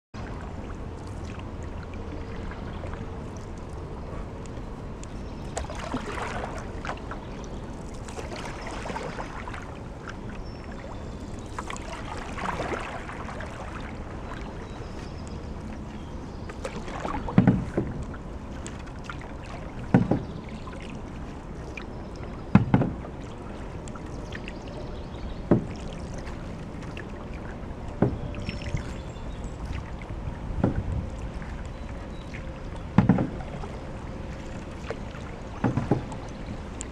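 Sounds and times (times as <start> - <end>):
paddle swishing water: 0.2 - 36.9
paddle knocking against canoe: 16.5 - 21.0, 22.2 - 23.7, 25.4 - 28.9, 29.7 - 36.9.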